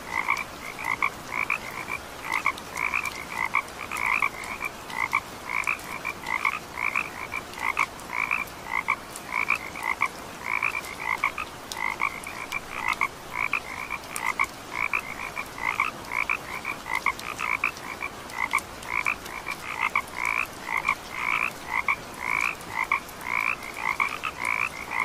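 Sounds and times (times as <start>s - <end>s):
frogs calling: 0.1s - 25.0s.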